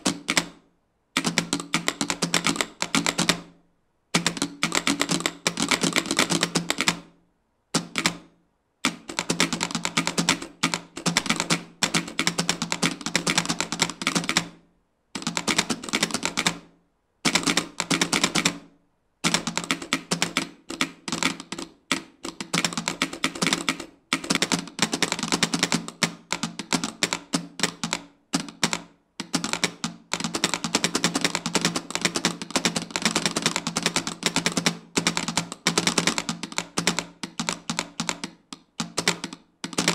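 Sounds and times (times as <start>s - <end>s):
telegraph keys clacking morse code: 4.2s - 6.9s, 8.9s - 14.4s, 19.3s - 39.9s.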